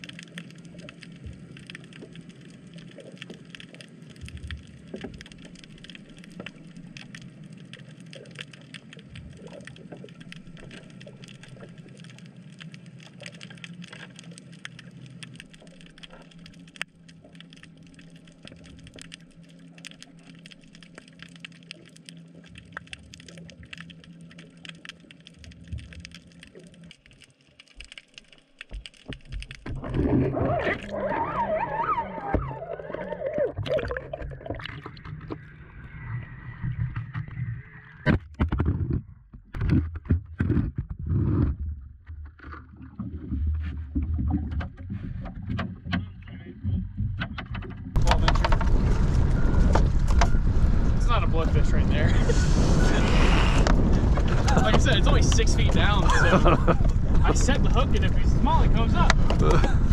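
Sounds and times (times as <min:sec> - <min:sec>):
faint crackling clicks: 0:00.0 - 0:35.6, 0:53.3 - 0:59.9
underwater low hum: 0:00.0 - 0:59.9
water splashing and gurgling: 0:00.0 - 0:59.9.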